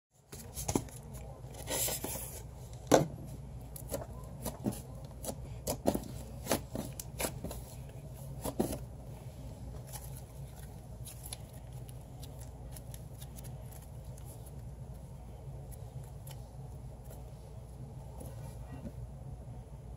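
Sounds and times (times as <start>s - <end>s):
low background hum: 0.2s - 19.9s.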